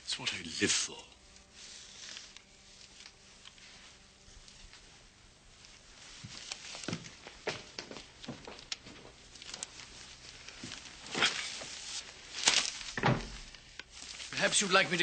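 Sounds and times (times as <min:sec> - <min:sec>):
newspaper rustling: 0:05.7 - 0:15.0.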